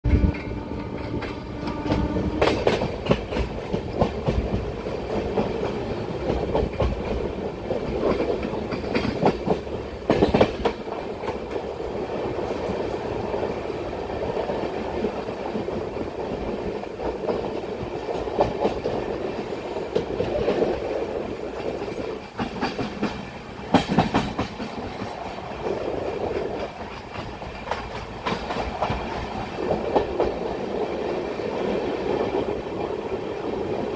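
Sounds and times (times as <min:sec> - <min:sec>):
train wheels rumbling on track: 0:00.0 - 0:33.9.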